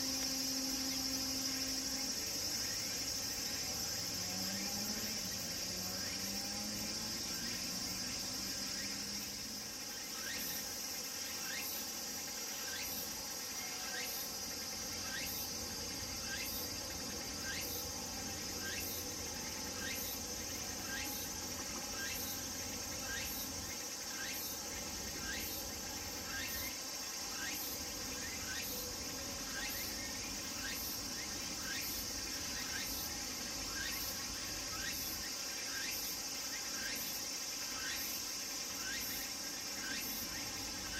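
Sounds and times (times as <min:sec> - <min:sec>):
cicada pulsing call: 0:00.0 - 0:40.9
cicadas droning: 0:00.0 - 0:40.9.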